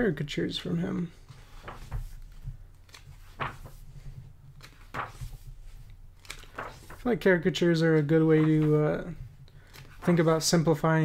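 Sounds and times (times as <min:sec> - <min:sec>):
book pages turning: 0:01.2 - 0:07.1, 0:07.9 - 0:10.8.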